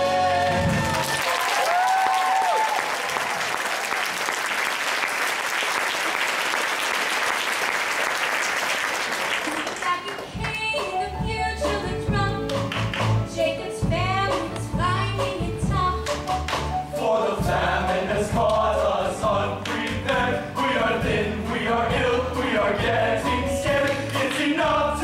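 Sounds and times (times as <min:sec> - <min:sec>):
chorus singing: 0:00.0 - 0:01.2, 0:16.7 - 0:25.0
woman singing: 0:09.8 - 0:12.6, 0:13.3 - 0:16.2
instrumental accompaniment with beat: 0:10.2 - 0:25.0.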